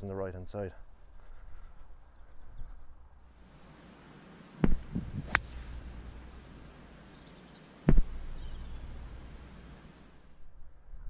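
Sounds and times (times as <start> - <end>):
golf club striking ball: 4.0 - 7.2, 7.8 - 9.8
dull thumps: 7.8 - 9.2.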